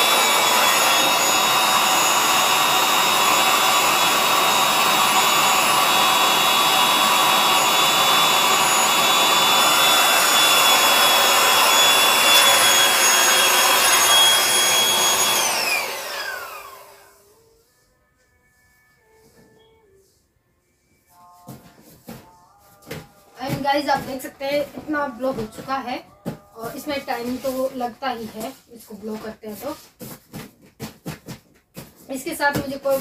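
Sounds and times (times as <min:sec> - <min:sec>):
electric air blower whining: 0:00.0 - 0:17.4.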